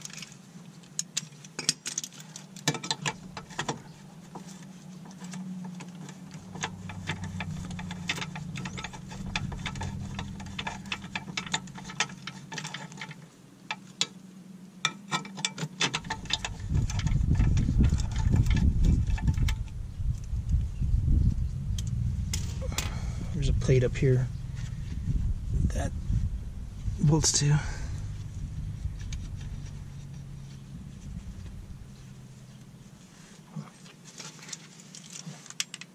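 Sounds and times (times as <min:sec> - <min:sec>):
heavy low rumble: 0:04.9 - 0:12.4, 0:15.9 - 0:33.7.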